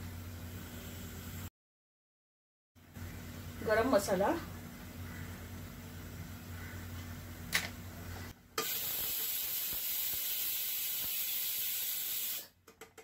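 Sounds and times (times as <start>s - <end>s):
pan hissing on stove: 8.6s - 12.5s.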